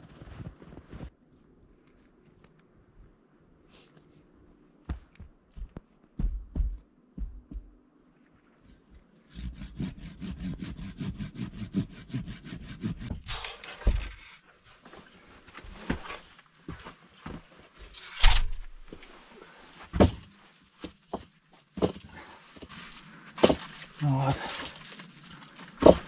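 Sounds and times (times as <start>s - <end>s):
footsteps crunching in snow: 0.0s - 1.1s
hand saw cutting wood: 9.3s - 14.0s.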